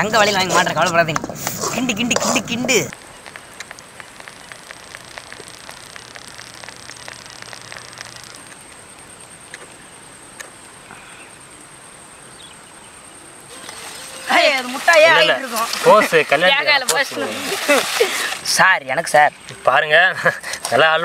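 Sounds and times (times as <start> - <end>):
outdoor background noise: 0.0 - 21.0
thick mixture bubbling and popping: 1.1 - 9.0.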